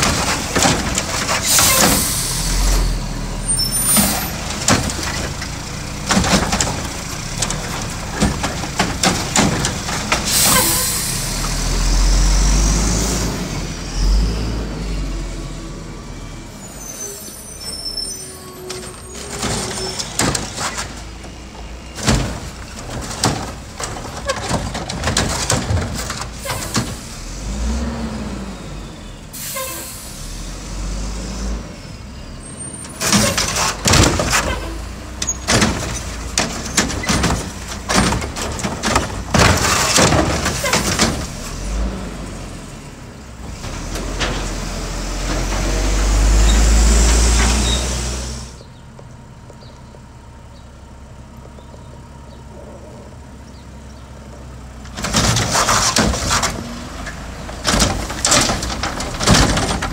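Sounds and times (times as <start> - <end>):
garbage truck arm clanking: 0.0 - 2.8, 3.6 - 11.7, 18.7 - 27.0, 32.8 - 41.9, 54.8 - 59.9
diesel engine revving and idling: 0.0 - 59.9.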